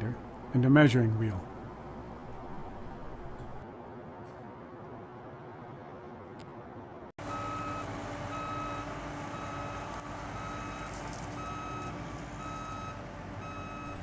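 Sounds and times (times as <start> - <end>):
diesel machinery droning: 7.2 - 14.0
backup alarm beeping: 7.3 - 9.8, 10.4 - 14.0.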